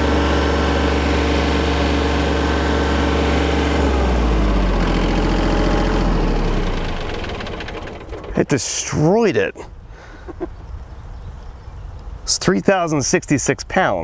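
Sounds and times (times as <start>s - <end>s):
tractor diesel engine lugging under load: 0.0s - 9.4s.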